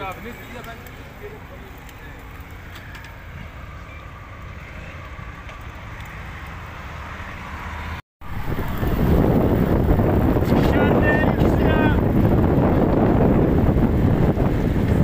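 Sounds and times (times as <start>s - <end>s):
motorcycles and cars passing: 0.0s - 15.0s
wind noise on microphone: 8.2s - 15.0s.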